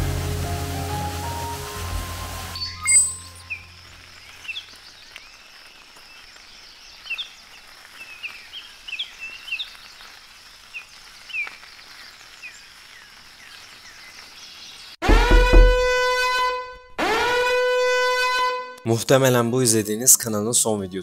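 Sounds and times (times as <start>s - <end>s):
steady high hiss: 0.0s - 13.5s
bird chirps: 2.6s - 9.8s.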